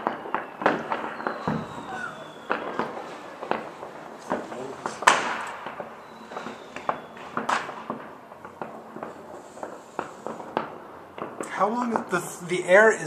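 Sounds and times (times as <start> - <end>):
whistling rocket: 0.0 - 10.7
firecrackers and fireworks bangs: 0.0 - 13.0.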